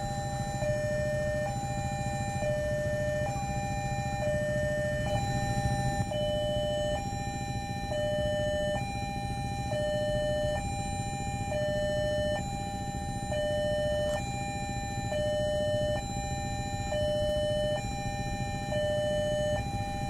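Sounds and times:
level crossing alarm two tones: 0.0 - 20.0
steady low rumble: 4.0 - 7.9.

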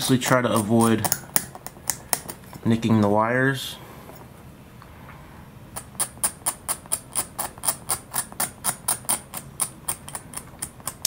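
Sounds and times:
knife blade scraping plastic: 0.0 - 2.6, 5.8 - 11.0.

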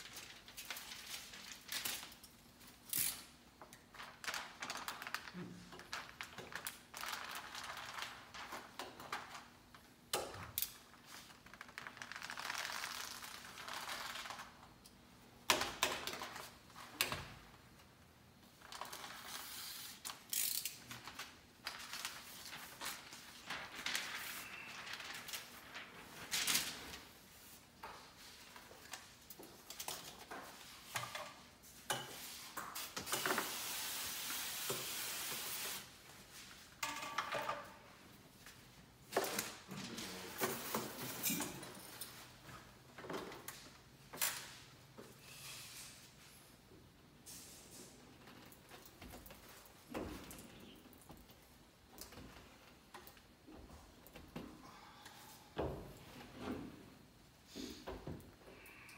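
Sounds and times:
steady hiss: 32.0 - 36.3.

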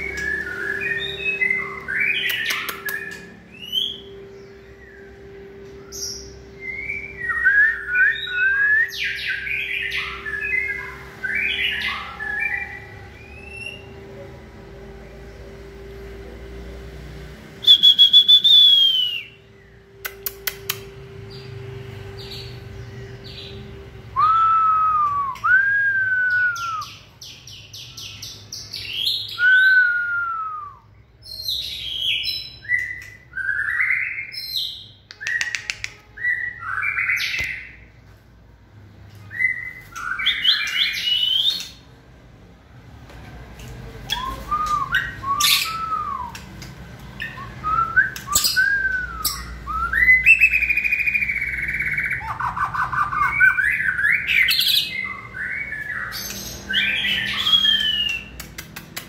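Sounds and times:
bird singing whistles and trills: 0.0 - 13.9, 17.6 - 21.5, 23.3 - 37.8, 39.2 - 41.8, 44.1 - 58.4
bird clicks: 2.3 - 3.2, 35.1 - 36.0, 58.0 - 59.0.

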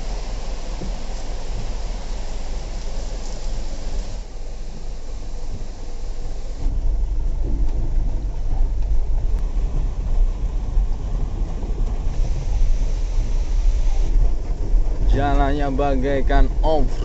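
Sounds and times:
heavy rain: 0.0 - 7.4
diesel truck engine rumble: 0.0 - 17.0.

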